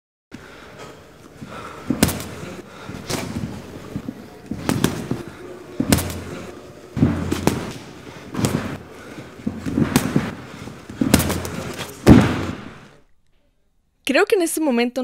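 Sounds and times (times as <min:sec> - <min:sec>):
boxing glove punches: 0:01.5 - 0:12.9.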